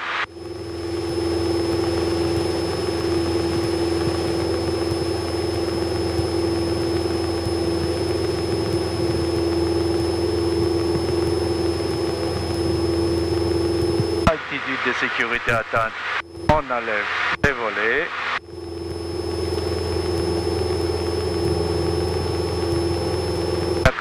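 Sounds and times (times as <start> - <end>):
propeller plane engine drone: 0.0 - 24.0.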